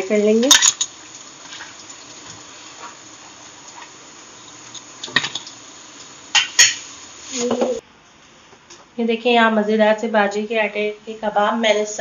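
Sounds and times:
oil frying hiss: 0.0s - 7.8s.

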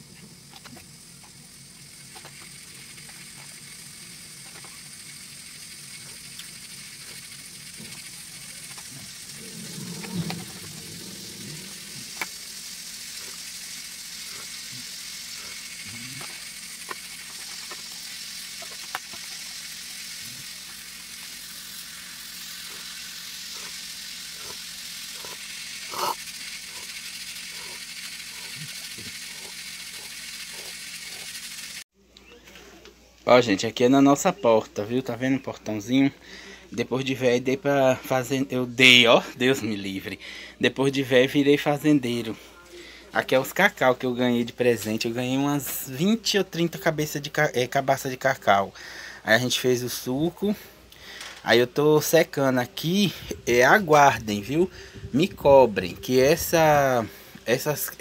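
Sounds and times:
steady soft hiss: 0.0s - 15.8s.

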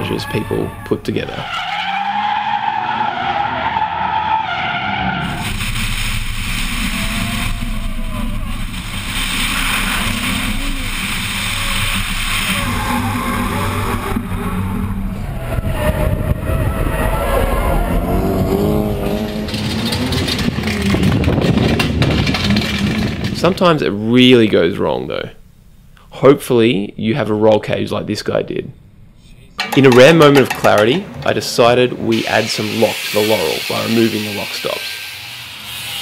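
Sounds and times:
tyres squealing and skidding: 0.0s - 5.9s, 6.5s - 23.3s, 32.4s - 36.0s
car engines revving hard: 12.8s - 23.3s.

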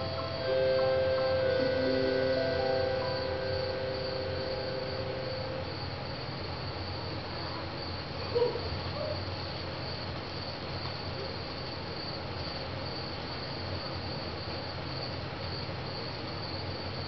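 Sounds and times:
short tone: 0.0s - 6.0s
sustained musical notes: 0.0s - 6.0s
crickets chirping: 0.0s - 17.0s.

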